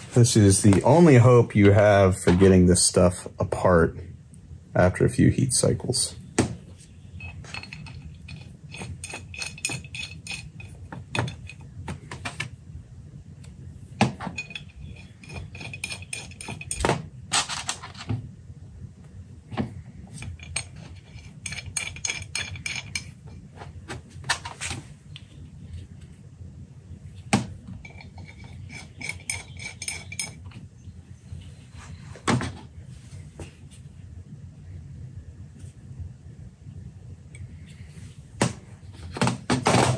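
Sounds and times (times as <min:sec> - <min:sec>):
steel parts clinking on workbench: 0:07.2 - 0:11.6, 0:14.2 - 0:17.9, 0:20.1 - 0:23.2, 0:27.8 - 0:30.6.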